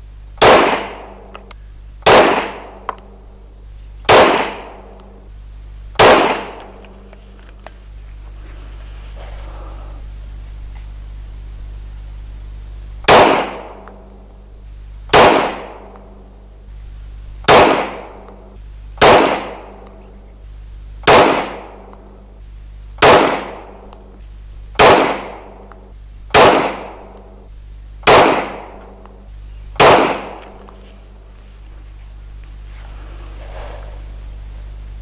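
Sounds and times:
pistol shots with echo: 0.4s - 1.4s, 2.0s - 3.2s, 4.1s - 5.2s, 6.0s - 6.8s, 13.1s - 14.1s, 15.1s - 16.2s, 17.5s - 20.0s, 21.0s - 22.0s, 23.0s - 24.0s, 24.8s - 25.7s, 26.3s - 27.4s, 28.0s - 29.2s, 29.8s - 30.7s.

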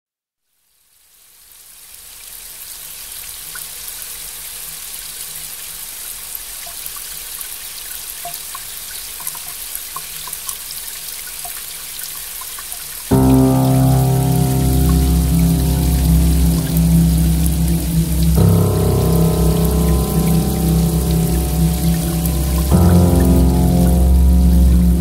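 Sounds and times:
steady rain falling: 1.1s - 25.0s
water drips: 8.2s - 25.0s.

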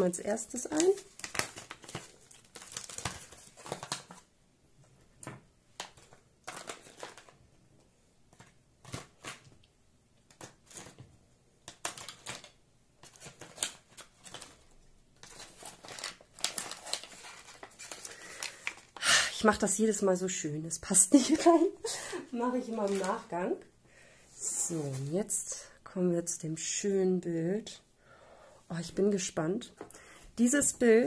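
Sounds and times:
plastic packaging crinkling: 0.0s - 4.3s, 5.8s - 7.4s, 11.6s - 19.0s, 22.4s - 23.5s.

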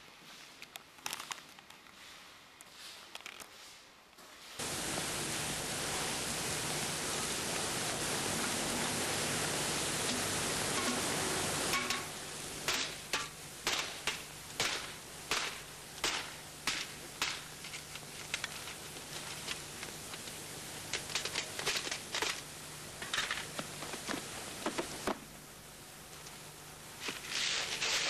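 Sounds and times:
hand tool knocking metal tin: 11.7s - 12.1s.

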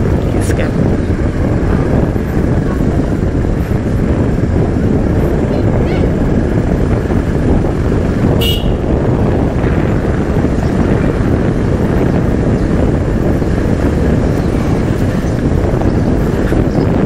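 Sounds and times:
motorcycle engine and wind: 0.0s - 17.0s
short horn beep: 8.4s - 8.8s.

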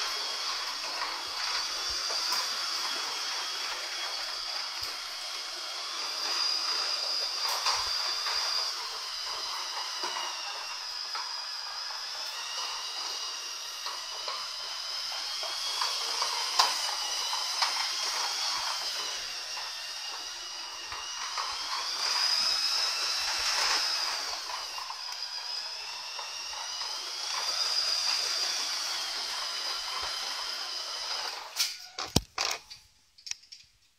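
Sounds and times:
toy truck motor whining: 0.0s - 33.5s.

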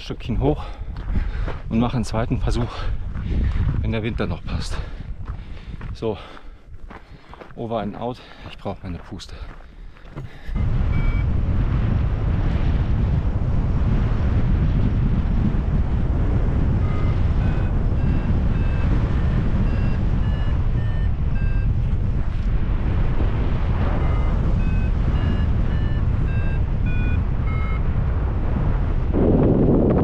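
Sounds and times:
wind rumble on microphone: 0.0s - 30.0s
variometer beeps: 10.5s - 11.4s, 16.6s - 22.5s, 23.8s - 28.1s.

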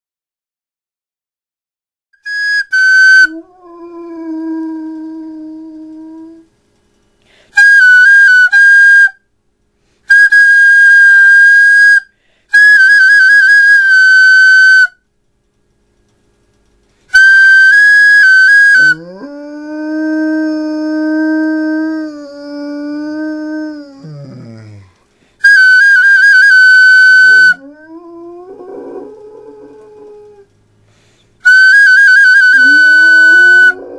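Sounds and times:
flute playing held notes: 2.2s - 6.4s, 7.6s - 9.2s, 17.1s - 24.7s, 25.4s - 29.0s, 31.4s - 33.9s
dog howling: 18.3s - 24.9s, 26.4s - 30.5s, 32.4s - 33.9s.

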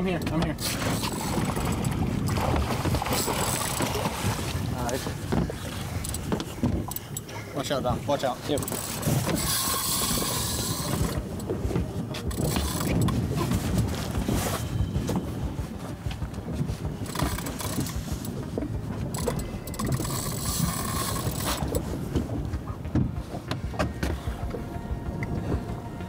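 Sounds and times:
water noise: 0.0s - 26.0s
wind: 0.0s - 26.0s
fishing reel drag buzzing: 8.6s - 11.2s, 19.2s - 21.7s.

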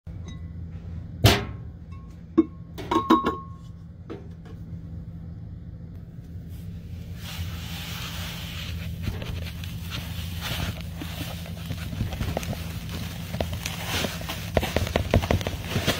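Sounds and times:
low steady hum: 0.1s - 15.9s.

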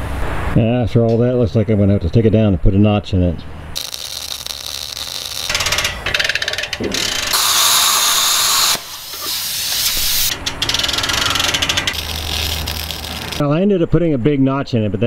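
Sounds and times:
plasma cutter hissing: 3.8s - 5.6s, 6.9s - 10.3s.

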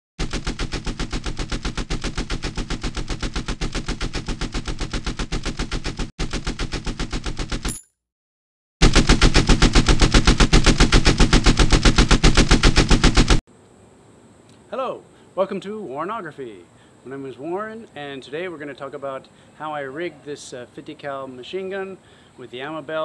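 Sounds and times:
machine gun automatic fire: 8.8s - 13.4s.

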